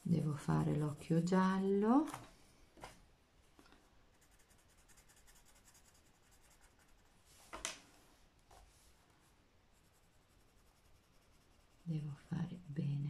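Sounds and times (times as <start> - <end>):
pencil scratching on paper: 4.1 - 7.1, 9.7 - 12.8.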